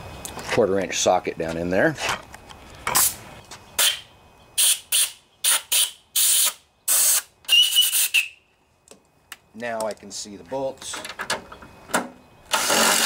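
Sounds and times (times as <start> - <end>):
compressed air hissing blasts: 2.9 - 8.3
thin whistle: 3.8 - 8.5.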